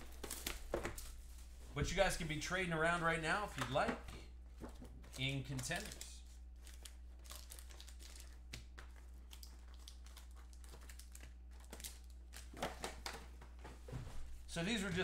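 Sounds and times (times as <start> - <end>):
plastic wrapping crinkling and tearing: 4.8 - 13.2.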